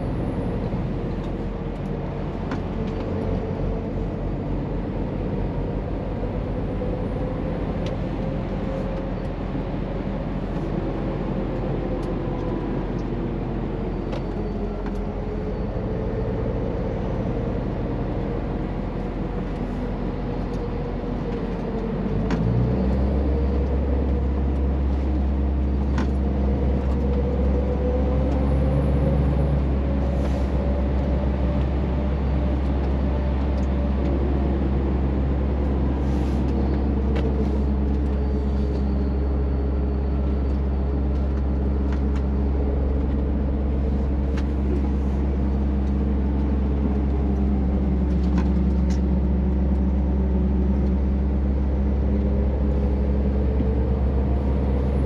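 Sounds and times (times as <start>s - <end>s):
truck diesel engine in cab: 0.0s - 55.0s.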